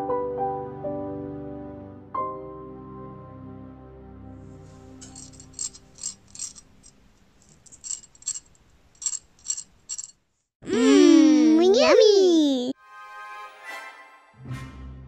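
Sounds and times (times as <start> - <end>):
soft piano music: 0.0 - 5.1.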